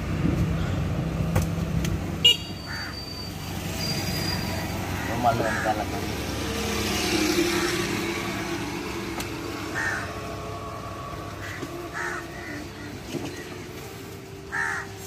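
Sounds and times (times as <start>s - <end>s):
passing road vehicle hum: 0.0s - 15.0s
crows cawing: 2.7s - 3.0s, 4.9s - 6.2s, 7.2s - 8.4s, 9.4s - 13.6s, 14.4s - 15.0s.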